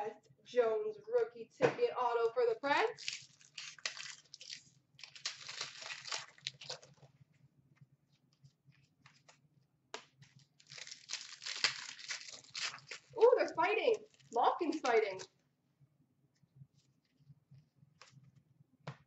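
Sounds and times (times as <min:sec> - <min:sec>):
foil wrapper crinkling and tearing: 0:02.9 - 0:07.2, 0:10.2 - 0:15.3.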